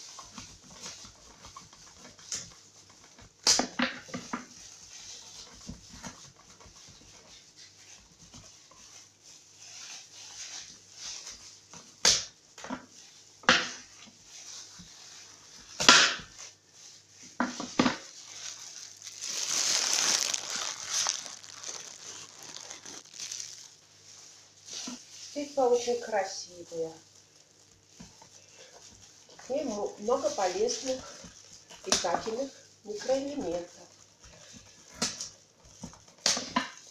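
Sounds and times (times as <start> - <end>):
rind crunching cracks: 18.9 - 23.7.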